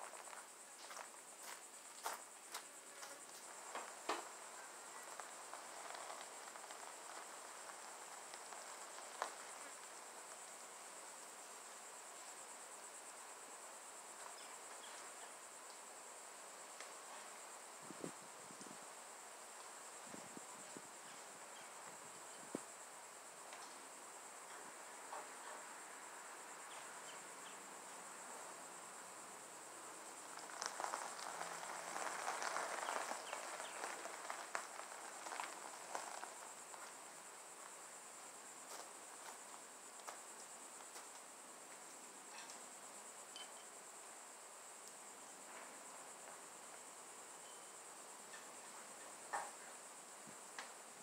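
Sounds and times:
footsteps on gravel: 0.0 - 4.4, 5.0 - 9.7, 30.2 - 37.0
tyres crunching on gravel: 0.0 - 10.4, 30.0 - 37.8
high-pitched insect chorus: 0.0 - 51.0.

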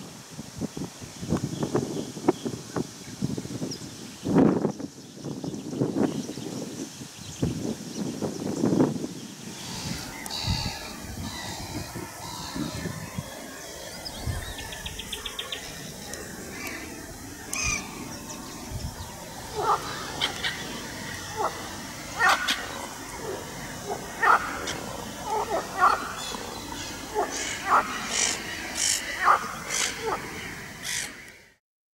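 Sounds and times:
crows cawing: 9.6 - 12.9, 17.5 - 18.0, 19.5 - 31.5.

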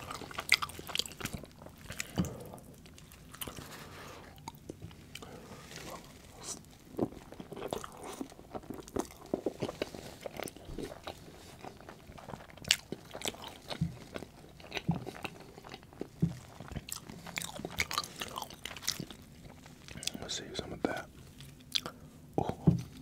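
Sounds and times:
chewing with wet mouth clicks: 0.0 - 3.6, 7.0 - 20.2, 21.4 - 23.0.

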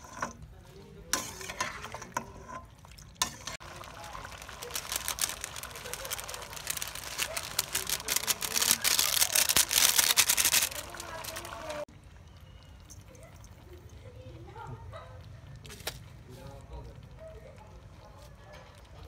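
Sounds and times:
food sizzling in a hot pot: 0.0 - 14.8.

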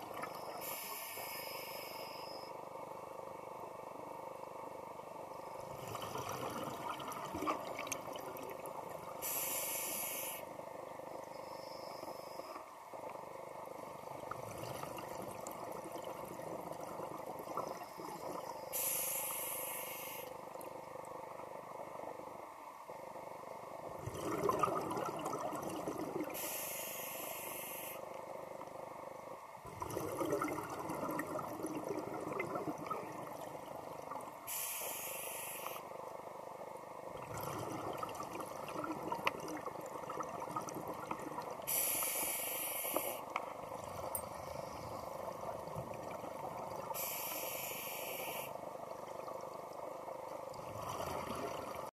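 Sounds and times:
diver inhaling through regulator: 9.2 - 10.5, 18.8 - 20.3, 34.5 - 35.8, 41.7 - 43.3, 47.0 - 48.6
bubbling exhalation: 24.0 - 26.3, 29.7 - 33.2.

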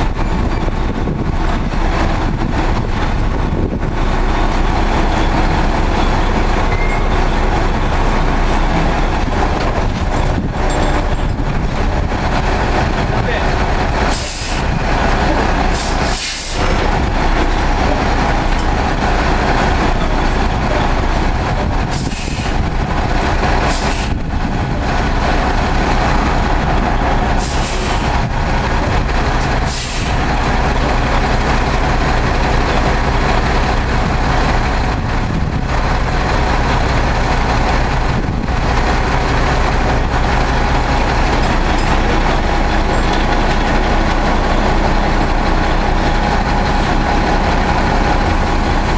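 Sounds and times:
diesel truck engines running: 0.0 - 48.9
air brake hisses: 15.8 - 16.6.

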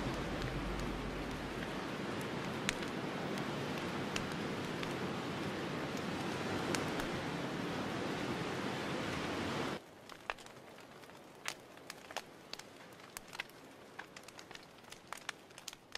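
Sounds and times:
campfire hissing and crackling: 0.0 - 15.9
faint clicks and ticks: 10.0 - 15.9.

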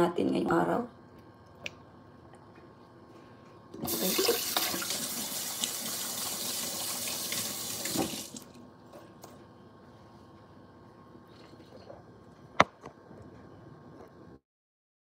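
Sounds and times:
tap running into sink: 3.8 - 8.4.

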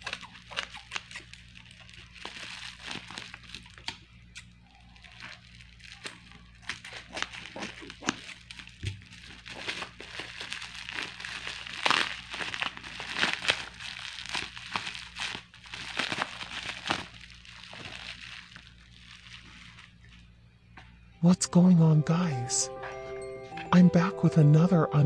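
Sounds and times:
bubble wrap crinkling: 0.0 - 20.5.

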